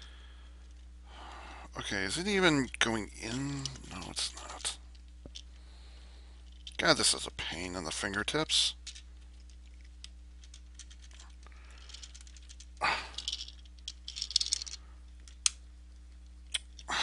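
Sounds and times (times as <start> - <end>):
plastic toy parts clicking: 8.8 - 15.6.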